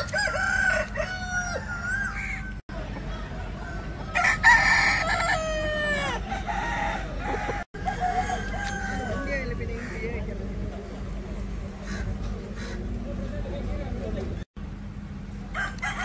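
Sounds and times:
roosters crowing: 0.0 - 2.6, 3.2 - 10.3, 15.4 - 16.0.

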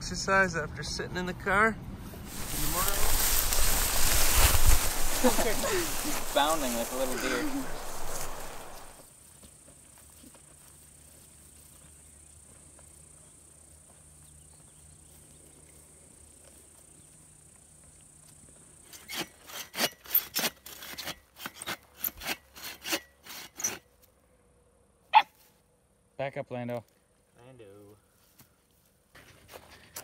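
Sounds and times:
hand saw cutting log: 19.0 - 23.8.

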